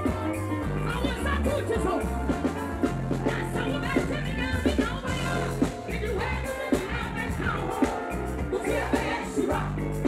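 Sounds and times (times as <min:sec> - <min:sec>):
live band music: 0:00.0 - 0:10.0
woman singing into a microphone: 0:03.2 - 0:10.0.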